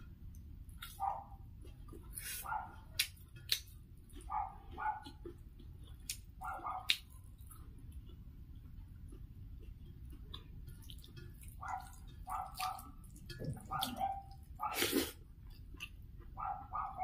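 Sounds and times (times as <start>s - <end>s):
dog barking: 1.0s - 1.4s, 2.4s - 3.0s, 4.2s - 5.2s, 6.4s - 7.0s, 11.6s - 13.0s, 13.6s - 14.9s, 16.4s - 17.0s.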